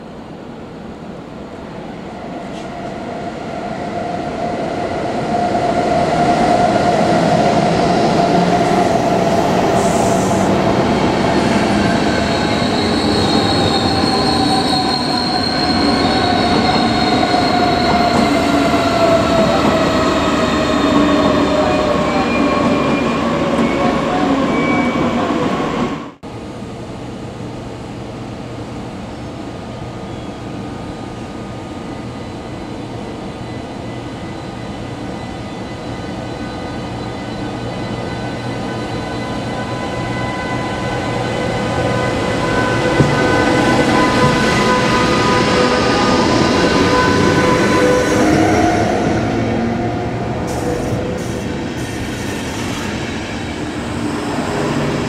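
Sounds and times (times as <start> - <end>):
train wheels squealing: 8.2 - 25.2, 32.2 - 55.0.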